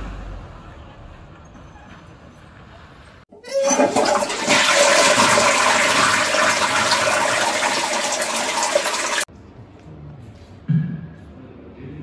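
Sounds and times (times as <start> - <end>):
toilet flushing: 3.4 - 9.3.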